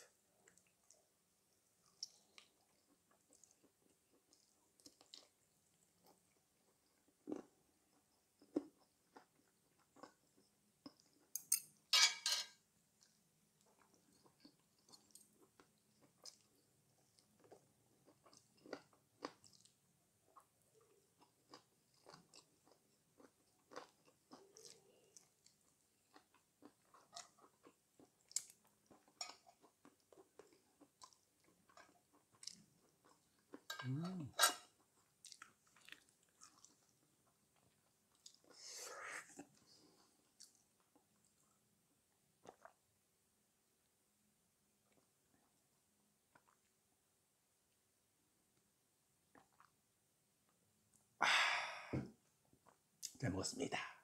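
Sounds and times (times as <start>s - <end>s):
chewing and biting food: 13.0s - 33.7s, 34.8s - 38.6s.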